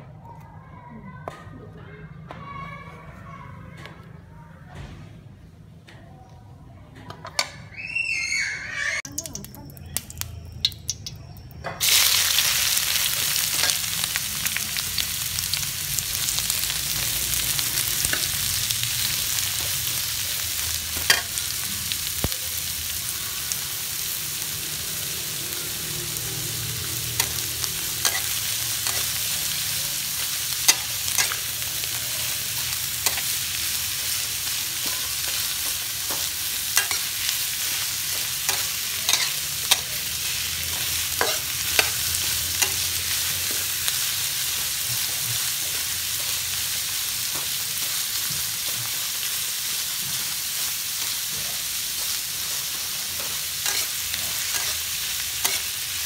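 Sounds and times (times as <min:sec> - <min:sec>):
ginger sizzling in oil: 0:07.7 - 0:56.0
spatula clicking against wok: 0:09.1 - 0:11.6.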